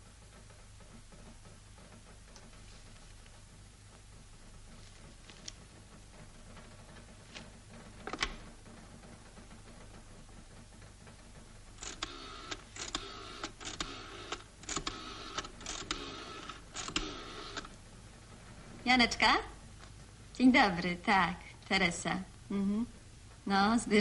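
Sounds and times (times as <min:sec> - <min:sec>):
rotary telephone dial clicking: 0:11.8 - 0:17.8.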